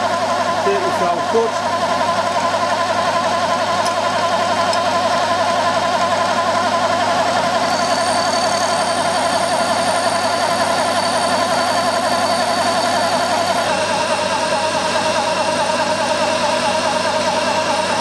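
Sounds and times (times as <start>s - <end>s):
milling machine cutting metal: 4.6s - 18.0s
thin high whine: 7.4s - 14.3s.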